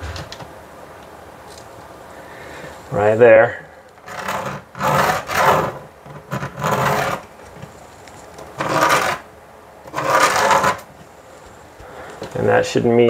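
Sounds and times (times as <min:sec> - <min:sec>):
scraping strokes on board: 0:04.0 - 0:07.8, 0:08.6 - 0:09.3, 0:09.9 - 0:11.5.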